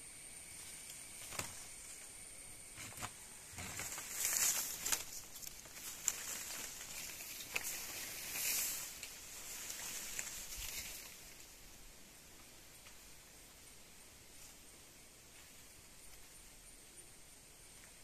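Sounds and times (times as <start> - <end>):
leaves rustling: 0.5 - 2.1, 2.8 - 16.6
branches clicking and snapping: 2.9 - 11.2.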